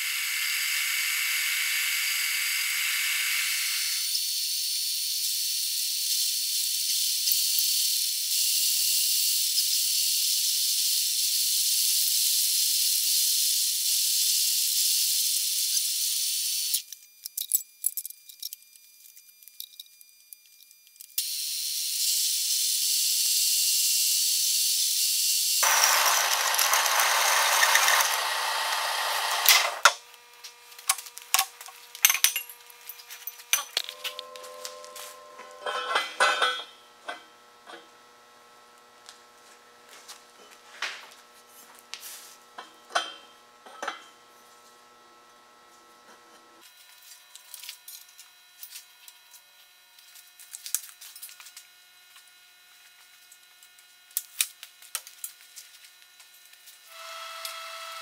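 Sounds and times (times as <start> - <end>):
hole saw cutting steel: 25.6 - 30.0.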